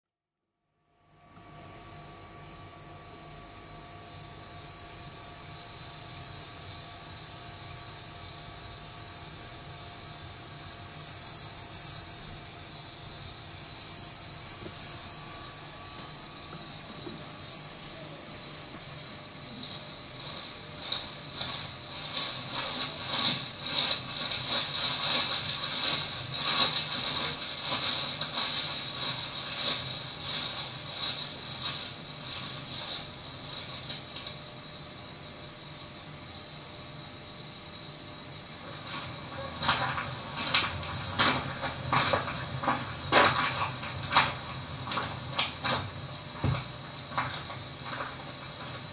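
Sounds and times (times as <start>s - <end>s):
crickets chirping: 0.7s - 48.9s
high insect trill: 0.7s - 48.9s.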